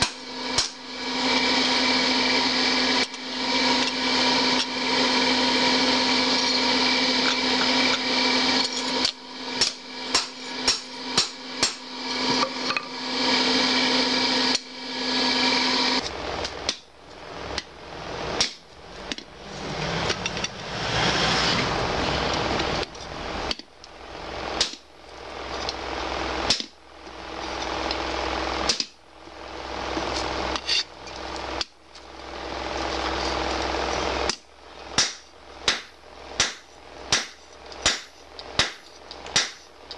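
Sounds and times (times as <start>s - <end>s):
steady machine hum: 0.0s - 39.9s
hammer striking metal on anvil: 7.2s - 13.0s, 35.0s - 39.7s.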